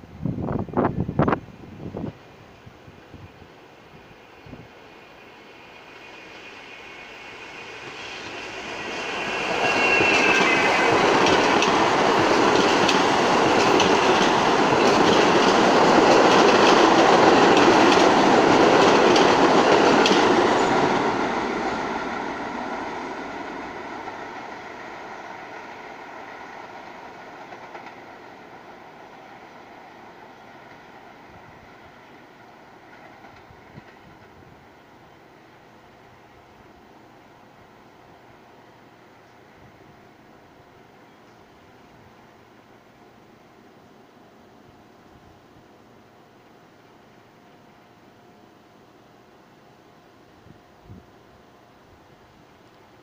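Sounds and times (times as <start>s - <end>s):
subway train passing: 0.0s - 53.0s
rail-joint clicks: 8.0s - 21.2s, 26.3s - 28.2s, 32.8s - 34.4s.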